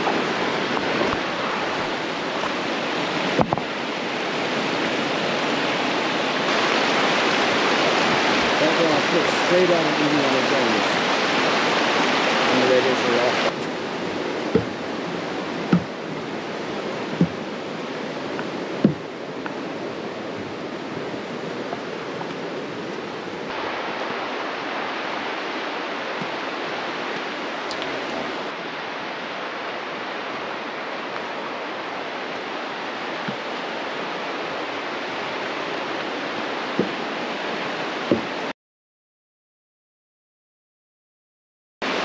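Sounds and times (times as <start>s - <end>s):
fast-flowing creek rushing: 0.0s - 38.5s
light knocks: 14.5s - 14.8s, 36.8s - 37.0s, 38.1s - 38.3s.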